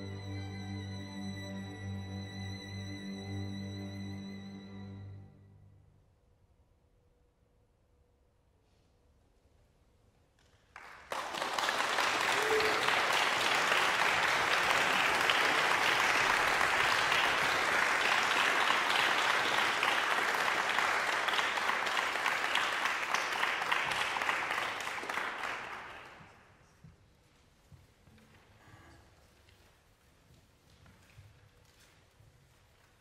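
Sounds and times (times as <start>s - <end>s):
audience applauding: 10.7s - 26.4s.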